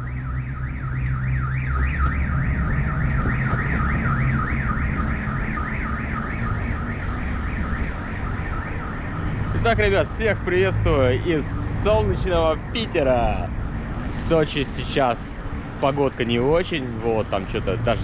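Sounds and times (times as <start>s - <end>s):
car alarm siren warbling: 0.0s - 12.4s
wind and riding noise: 0.0s - 18.0s.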